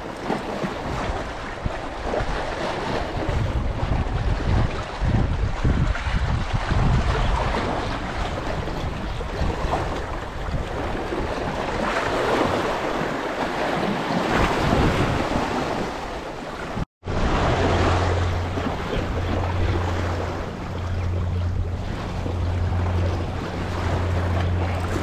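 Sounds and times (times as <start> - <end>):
waves washing against rocks: 0.0 - 25.0
wind buffeting microphone: 0.0 - 25.0
steady low hum: 17.1 - 25.0.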